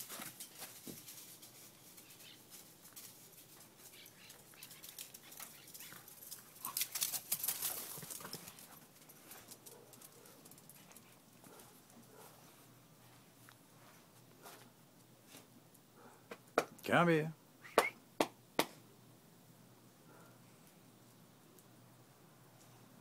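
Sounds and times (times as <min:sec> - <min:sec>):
dog running on grass and leaves: 0:00.0 - 0:12.2.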